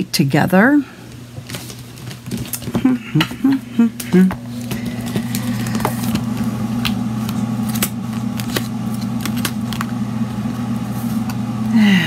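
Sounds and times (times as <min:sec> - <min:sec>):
machine humming: 0:02.3 - 0:12.0.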